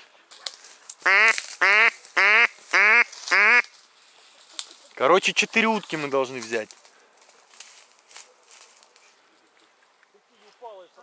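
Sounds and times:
duck quacking: 0:01.0 - 0:03.7.

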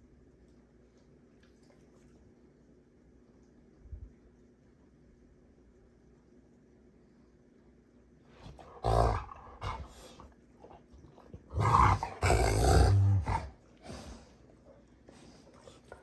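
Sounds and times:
dogs growling and snarling: 0:08.4 - 0:14.3.

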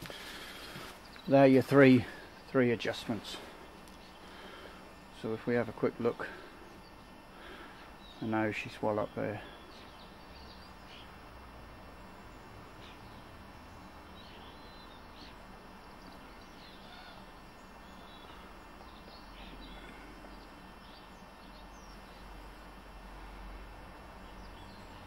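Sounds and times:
low background noise: 0:00.0 - 0:25.0
faint bird chirps: 0:12.0 - 0:22.4.

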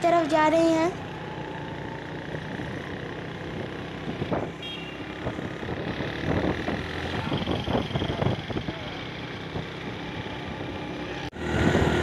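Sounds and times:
vehicle driving: 0:00.0 - 0:12.0.

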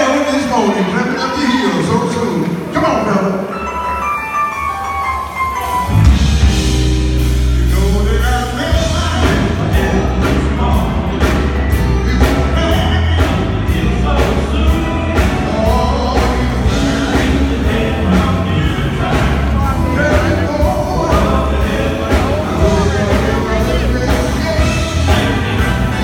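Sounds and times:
gospel band playing: 0:00.0 - 0:26.0
man singing: 0:07.5 - 0:26.0.

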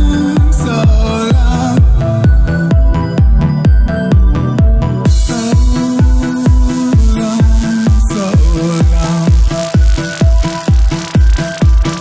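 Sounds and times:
kick drum beat: 0:00.0 - 0:12.0
held synth tones: 0:05.1 - 0:12.0.

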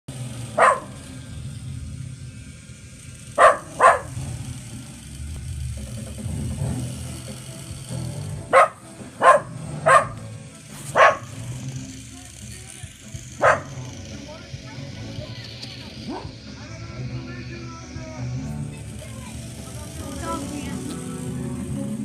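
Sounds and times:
dog barking: 0:00.5 - 0:01.1, 0:03.4 - 0:04.3, 0:08.5 - 0:10.3, 0:10.9 - 0:11.4, 0:13.4 - 0:13.9, 0:16.0 - 0:16.4.

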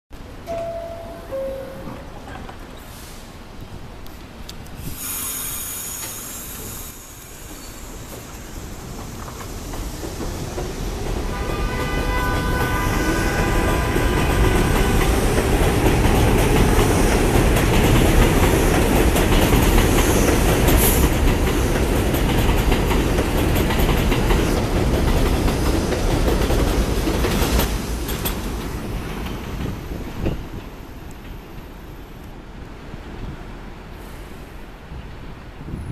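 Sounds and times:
train wheels clattering on rails: 0:05.6 - 0:31.8.

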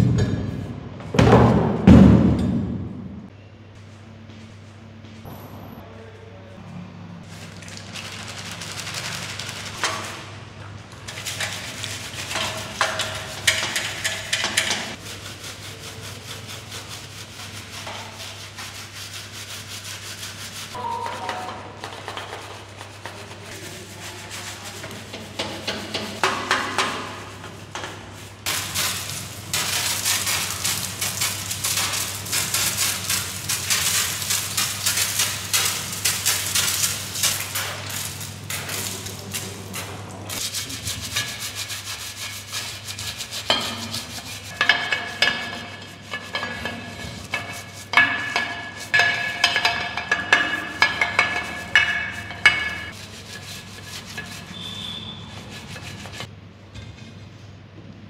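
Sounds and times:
brush scrubbing metal frame: 0:07.3 - 0:10.4, 0:11.0 - 0:56.3
pressure washer spraying: 0:28.5 - 0:56.3.

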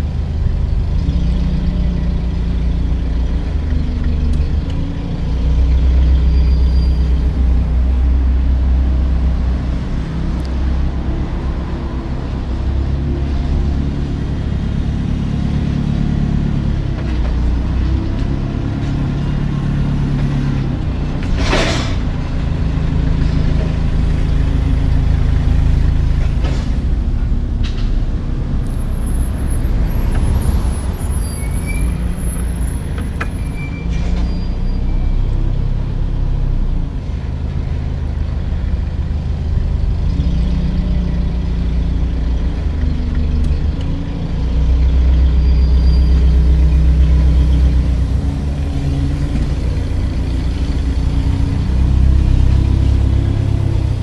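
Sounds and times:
diesel truck engine running: 0:35.2 - 0:54.0.

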